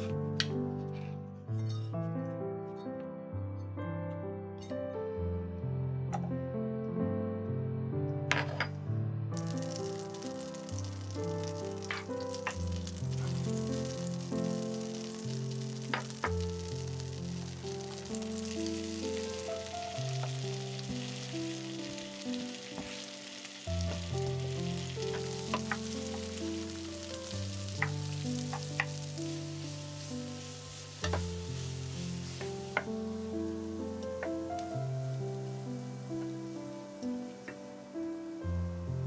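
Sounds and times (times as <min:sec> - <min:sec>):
soft background music: 0:00.0 - 0:39.0
onions sizzling in a frying pan: 0:09.4 - 0:39.0
spatula tapping a pan: 0:27.7 - 0:29.1.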